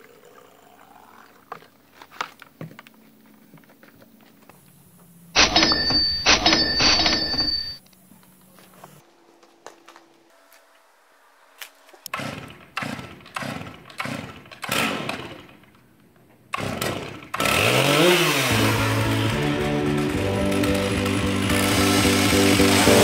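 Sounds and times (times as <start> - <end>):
chainsaw engine running: 16.6 - 23.0
background music: 18.0 - 23.0.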